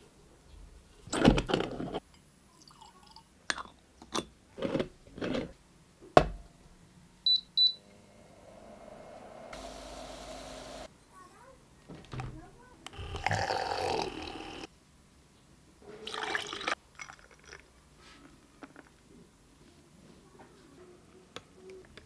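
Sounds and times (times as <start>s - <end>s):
faint steady hum: 5.6s - 11.1s
short high beeps: 7.3s - 7.9s.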